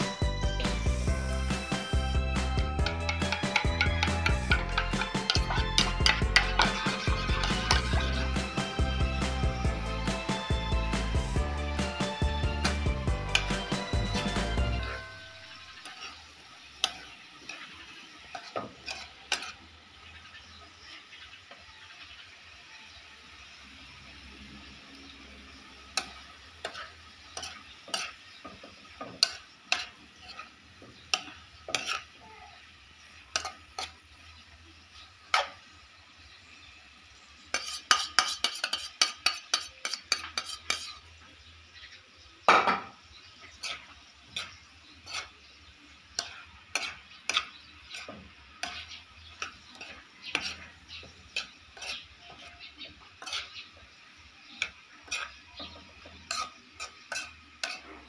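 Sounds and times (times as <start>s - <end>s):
faint sizzling: 0.0s - 58.0s
metal utensil scraping a wok: 2.8s - 9.4s, 12.6s - 21.2s, 25.4s - 32.2s, 33.0s - 35.6s, 37.4s - 41.2s, 43.3s - 58.0s.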